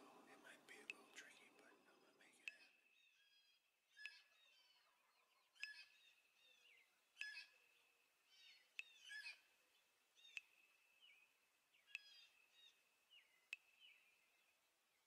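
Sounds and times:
bird chip notes: 0:00.0 - 0:03.4
bird twittering chirps: 0:00.0 - 0:15.0.

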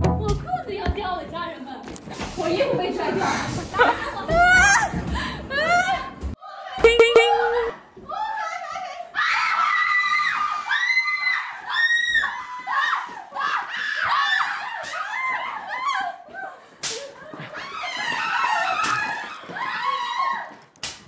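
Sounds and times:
women screaming: 0:04.3 - 0:06.8, 0:07.4 - 0:20.6.

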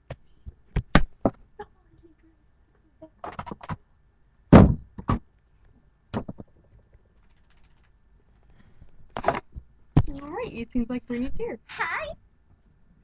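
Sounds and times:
thumps and knocks: 0:04.5 - 0:05.3, 0:06.1 - 0:07.9.

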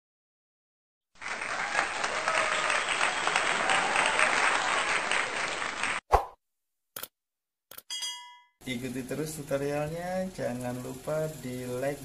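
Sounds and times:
crowd applause: 0:01.2 - 0:06.0.

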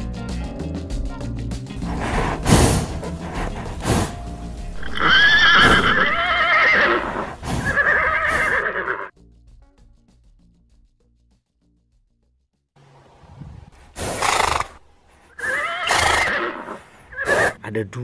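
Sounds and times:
horse neighing: 0:04.8 - 0:09.1, 0:14.0 - 0:17.6.

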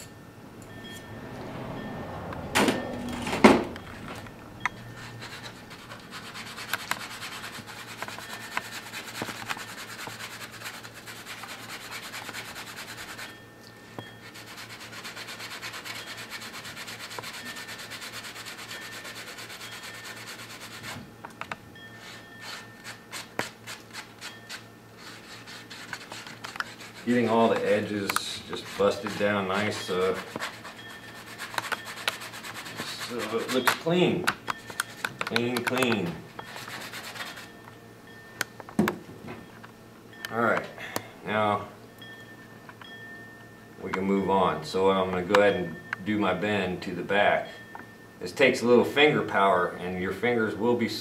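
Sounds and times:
wire sanding on a sanding block: 0:05.0 - 0:13.4, 0:14.2 - 0:21.0, 0:22.0 - 0:34.0, 0:35.4 - 0:37.5.

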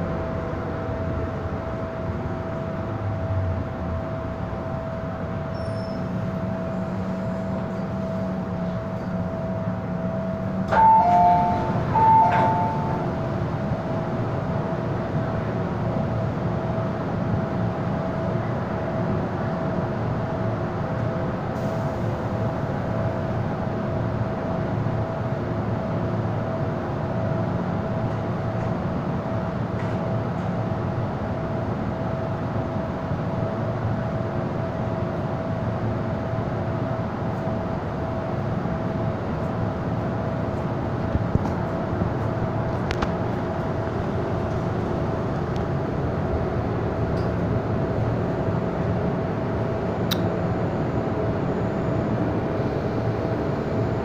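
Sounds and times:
subway car rumble and hum: 0:00.0 - 0:54.0
two-note electronic tone: 0:10.7 - 0:13.2.

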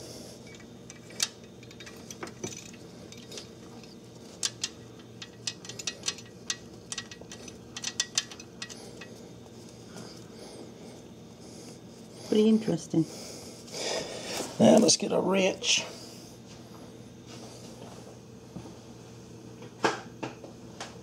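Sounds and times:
steady low hum: 0:00.0 - 0:21.0
metal tool parts clicking: 0:00.5 - 0:09.1.

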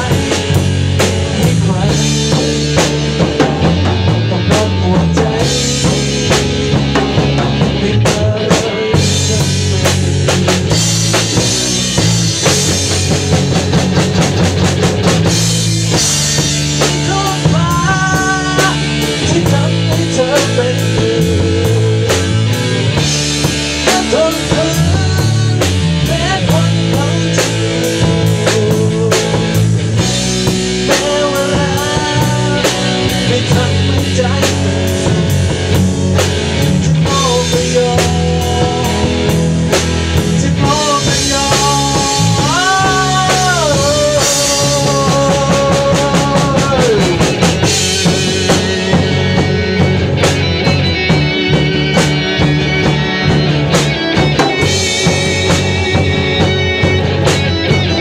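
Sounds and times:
bending melody line: 0:00.0 - 0:58.0
drum kit with cymbals: 0:00.0 - 0:58.0
electric guitar: 0:00.0 - 0:58.0.

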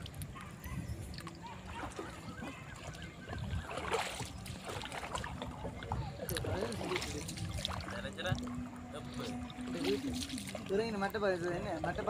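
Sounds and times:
water lapping against boat hull: 0:00.0 - 0:12.0
water splash: 0:01.1 - 0:11.0.

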